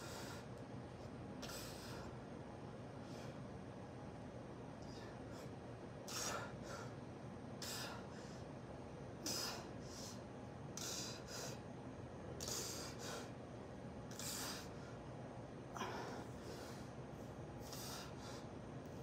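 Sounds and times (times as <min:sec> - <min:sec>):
man breathing in sharp puffs: 0:00.0 - 0:00.6, 0:01.4 - 0:02.2, 0:04.8 - 0:07.0, 0:07.6 - 0:08.6, 0:09.2 - 0:11.7, 0:12.4 - 0:13.4, 0:14.1 - 0:15.1, 0:17.6 - 0:18.6.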